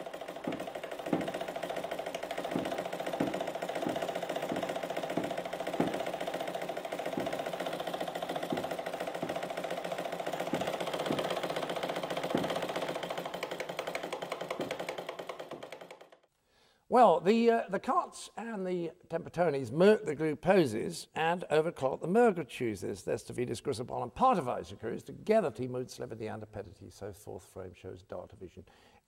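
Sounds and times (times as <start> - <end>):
rapid mechanical buzz: 0.0 - 16.2.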